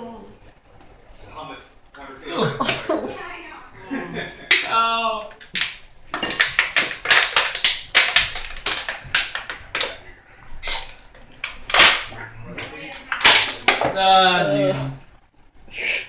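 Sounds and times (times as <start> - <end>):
plastic bottle crackling: 5.3 - 10.0, 10.6 - 12.2, 12.9 - 14.0.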